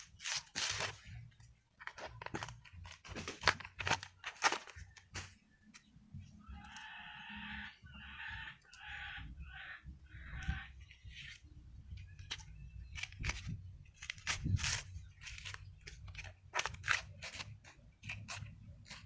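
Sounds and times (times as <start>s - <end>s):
leaf sheaths cracking and tearing: 0.0s - 1.4s, 14.0s - 19.0s
chicken calling: 6.4s - 10.9s.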